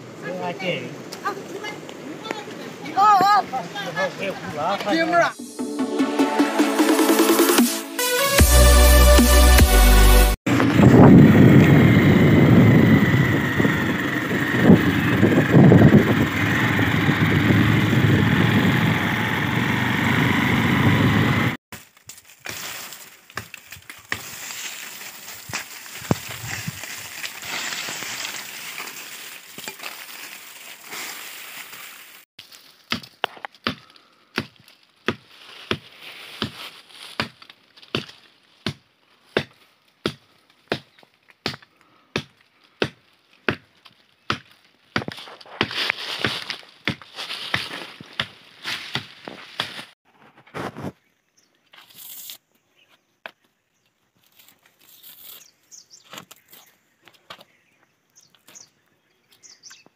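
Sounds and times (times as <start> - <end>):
outdoor noise: 0.0 - 8.5, 9.1 - 59.9
loud electronic music: 5.3 - 10.4
chopping wood: 32.8 - 49.9.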